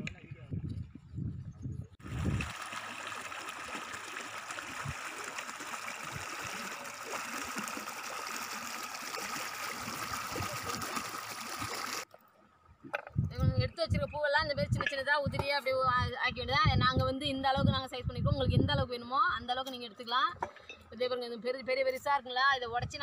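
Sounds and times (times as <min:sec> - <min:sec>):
stream water rushing over rocks: 0:02.0 - 0:12.1.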